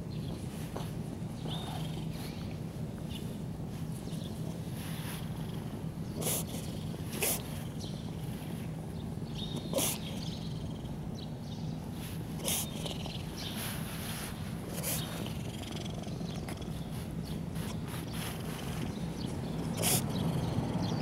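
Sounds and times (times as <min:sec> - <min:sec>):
cat purring: 0:00.7 - 0:02.6, 0:04.2 - 0:08.7, 0:12.0 - 0:21.0.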